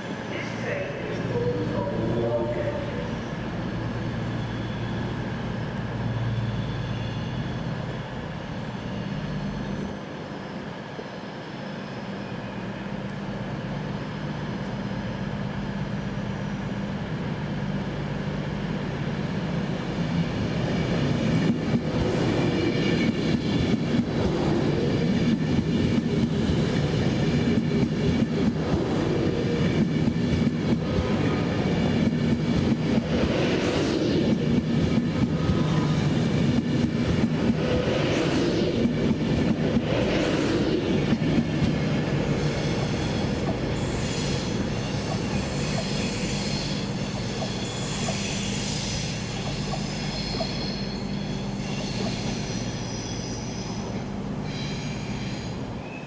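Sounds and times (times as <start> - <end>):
train wheels rumbling on rail: 0.0 - 56.0.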